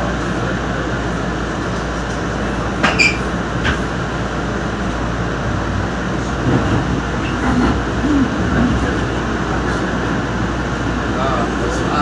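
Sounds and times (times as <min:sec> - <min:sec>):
rail car wheels rumbling: 0:00.0 - 0:12.0
brief squeak: 0:02.8 - 0:03.3.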